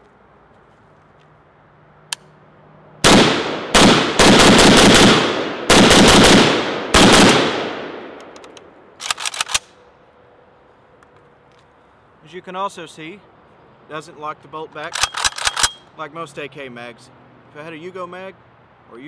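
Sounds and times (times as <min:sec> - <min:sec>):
rifle shots echoing: 0:03.0 - 0:08.4
small clicks: 0:08.2 - 0:09.7.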